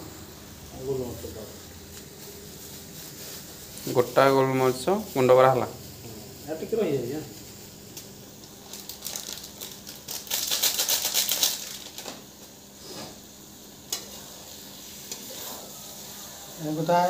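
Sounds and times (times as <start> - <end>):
food sizzling in pan: 0.0 - 17.0.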